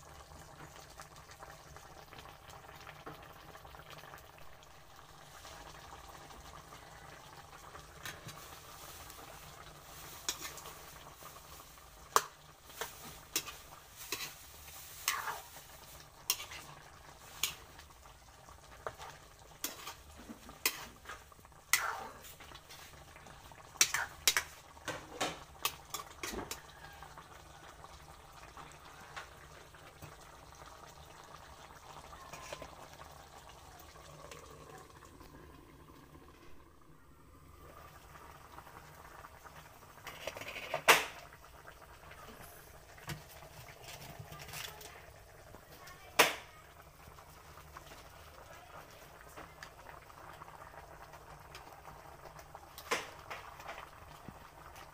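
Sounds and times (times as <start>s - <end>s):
stew bubbling in a wok: 0.0s - 54.9s
utensil scraping a metal pan: 12.8s - 14.4s, 16.2s - 16.8s.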